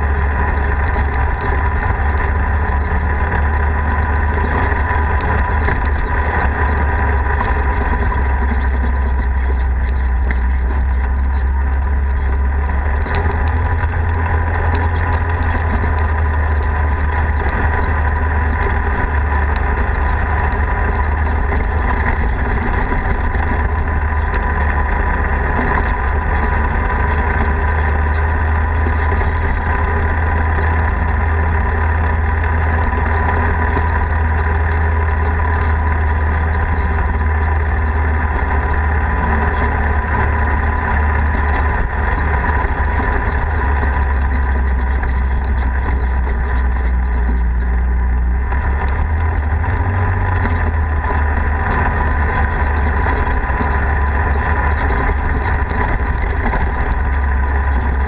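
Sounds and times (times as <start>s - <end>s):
vehicle engine drone: 0.0s - 58.0s.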